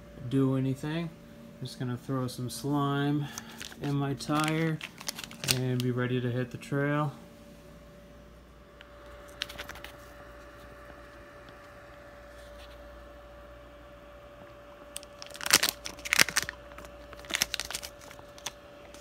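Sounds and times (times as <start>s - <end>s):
faint steady hum: 0.0s - 19.0s
plastic bottle crinkling: 3.4s - 5.9s, 9.3s - 10.0s, 15.0s - 19.0s.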